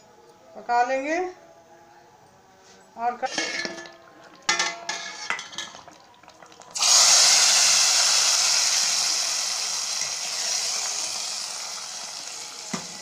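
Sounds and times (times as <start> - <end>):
spoon clinking on steel pot: 3.3 - 6.6
hot oil sizzling: 3.3 - 13.0.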